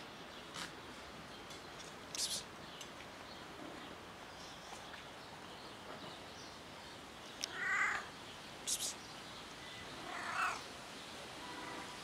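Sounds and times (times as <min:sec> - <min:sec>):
cat meowing: 0:07.5 - 0:08.1, 0:10.0 - 0:10.6.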